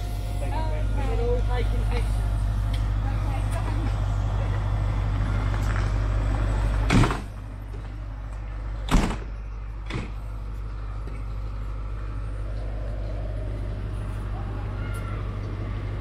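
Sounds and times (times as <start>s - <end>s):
diesel train idling hum: 0.0s - 16.0s
train doors slamming shut: 6.8s - 7.4s, 8.8s - 10.2s.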